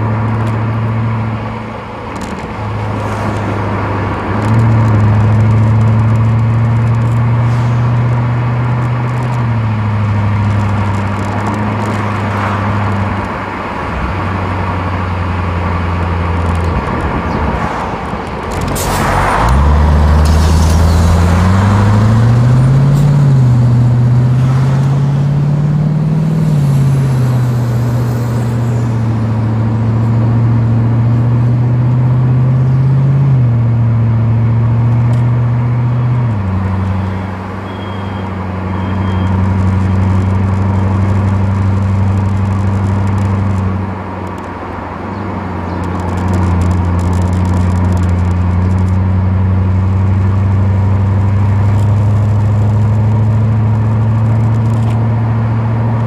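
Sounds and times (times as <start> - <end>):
car engine exhaust note: 18.4 - 44.0.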